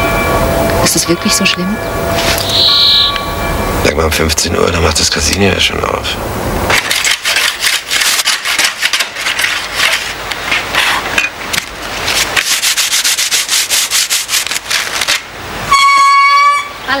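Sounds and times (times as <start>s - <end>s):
surfboard sanded by hand: 11.9s - 15.0s.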